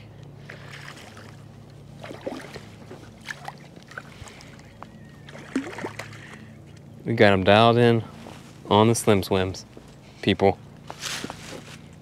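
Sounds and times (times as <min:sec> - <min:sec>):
low steady hum: 0:00.0 - 0:12.0
fish splashing in water: 0:00.4 - 0:06.5.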